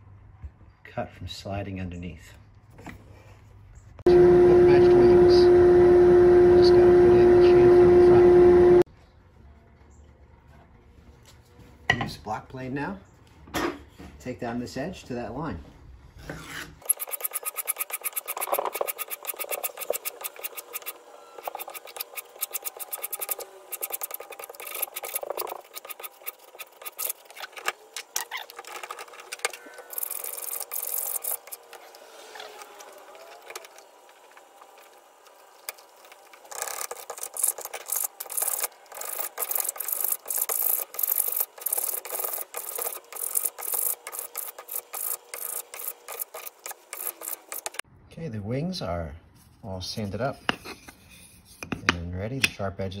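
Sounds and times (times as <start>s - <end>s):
block plane shaving wood: 16.4s - 47.8s.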